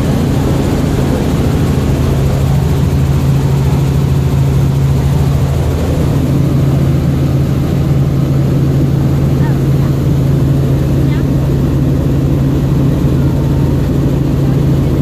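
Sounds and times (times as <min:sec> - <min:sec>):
helicopter engine and rotor drone: 0:00.0 - 0:15.0.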